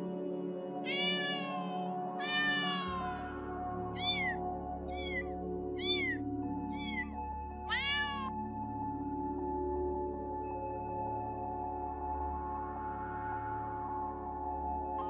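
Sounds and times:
kitten meowing: 0.9s - 3.4s, 4.0s - 7.1s, 7.7s - 8.3s.

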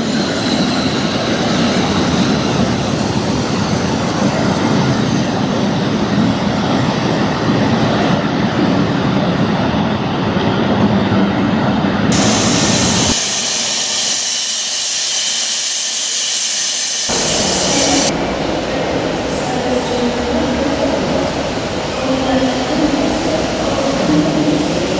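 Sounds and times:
train coaches rumbling on track: 0.0s - 24.9s
loud steam hiss: 12.1s - 18.2s.

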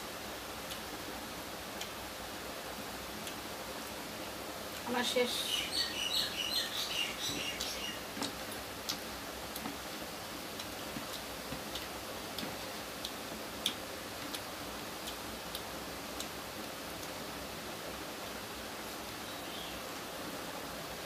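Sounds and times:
steady background hiss: 0.0s - 21.0s
high chirps: 5.4s - 8.0s.

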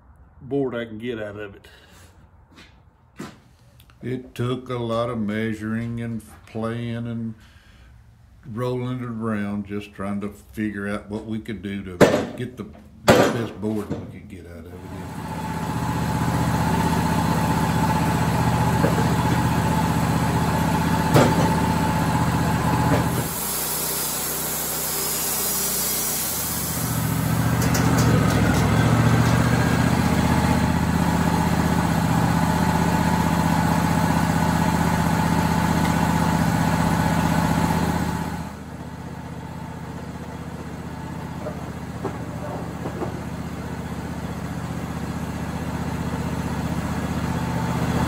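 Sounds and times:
band sawmill cutting wood: 14.7s - 48.0s.

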